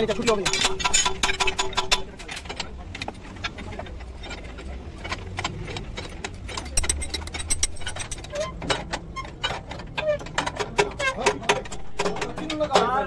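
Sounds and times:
low steady rumble: 0:00.0 - 0:13.0
spanners clinking on nuts: 0:03.4 - 0:13.0.

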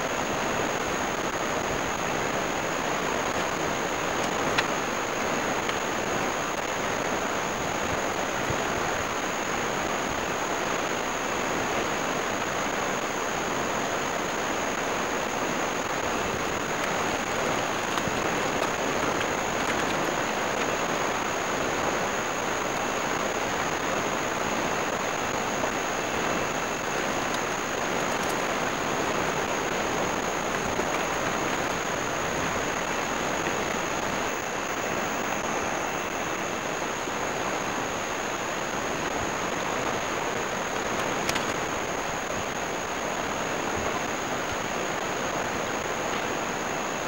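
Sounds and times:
faint high-pitched whine: 0:00.0 - 0:47.0
ocean surf breaking: 0:14.3 - 0:35.1.

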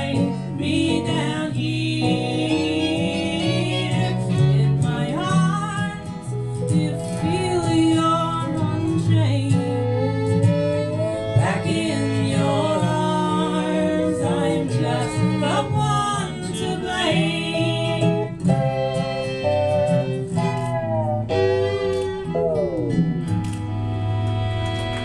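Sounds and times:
person singing: 0:00.0 - 0:10.1, 0:11.2 - 0:18.8, 0:22.3 - 0:23.2
acoustic guitar: 0:00.0 - 0:25.0
electric guitar: 0:00.0 - 0:25.0
fiddle: 0:00.0 - 0:25.0.

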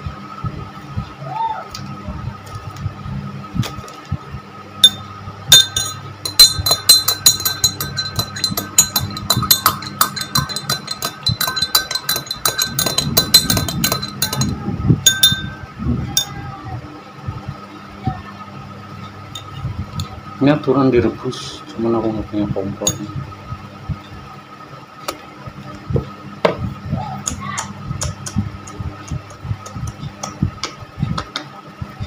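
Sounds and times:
metal spoon clinking in glass: 0:04.8 - 0:15.6, 0:16.2 - 0:16.4, 0:22.8 - 0:23.1.

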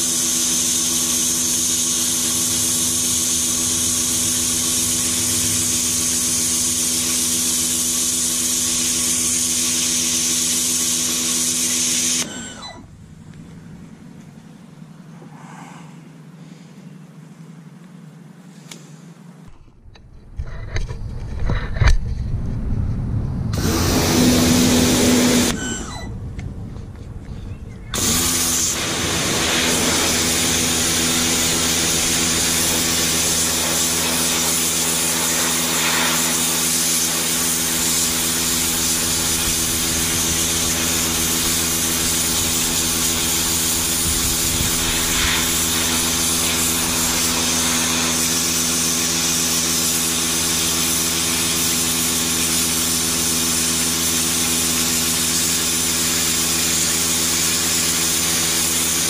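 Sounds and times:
water jet hissing on soil: 0:00.0 - 0:12.6, 0:27.9 - 0:59.0
pressure washer motor humming: 0:00.0 - 0:14.6, 0:23.0 - 0:59.0.

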